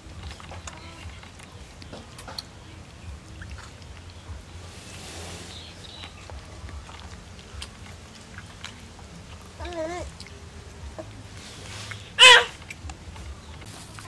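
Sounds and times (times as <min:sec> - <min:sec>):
monkey chewing and lip-smacking: 0:00.0 - 0:14.0
monkey high cry: 0:12.2 - 0:12.6
monkey squeaking: 0:12.2 - 0:12.6.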